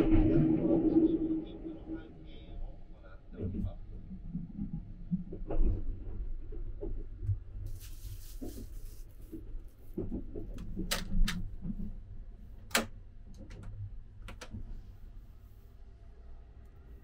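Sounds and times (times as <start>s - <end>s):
train rumbling: 0.0s - 17.0s
plastic bag rustling: 7.7s - 10.5s
door lock clicking: 10.6s - 11.5s, 12.6s - 14.7s.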